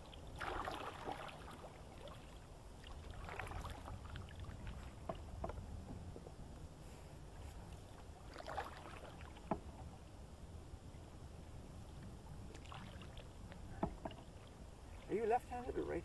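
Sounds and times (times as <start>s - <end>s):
paddle splashing and dripping: 0.0s - 5.8s, 7.6s - 10.1s, 12.0s - 15.9s
low steady rumble: 0.0s - 16.0s
paddle knocking against metal canoe: 4.9s - 6.0s, 9.4s - 9.8s, 13.6s - 14.3s.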